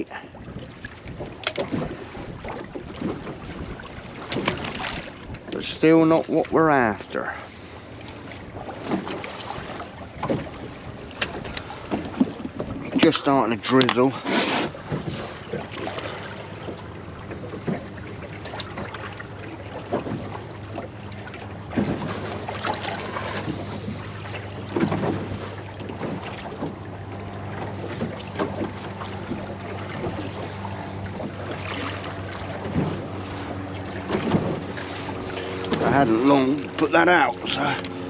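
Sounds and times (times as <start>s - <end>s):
wind on microphone: 0.0s - 5.6s
water moving around boat: 0.0s - 38.0s.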